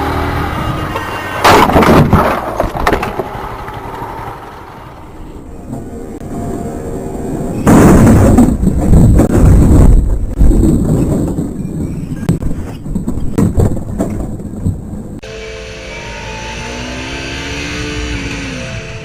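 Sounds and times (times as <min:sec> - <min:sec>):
motorcycle crash and scraping: 0:01.0 - 0:05.1
steady held tones: 0:15.2 - 0:19.0.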